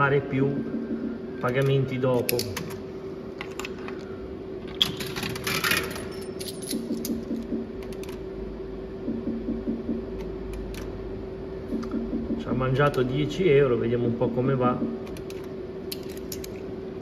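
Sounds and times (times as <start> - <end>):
coin rattling through mechanism: 4.8 - 7.2.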